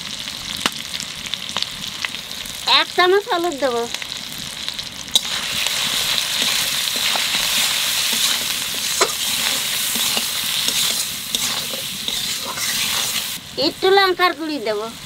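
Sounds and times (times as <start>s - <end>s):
vegetables sizzling in hot oil: 0.0s - 15.0s
metal spatula scraping pan: 5.2s - 13.4s.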